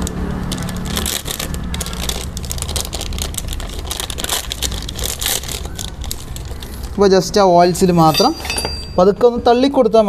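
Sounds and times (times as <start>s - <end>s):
paper and plastic wrapping crinkling: 0.0s - 9.1s.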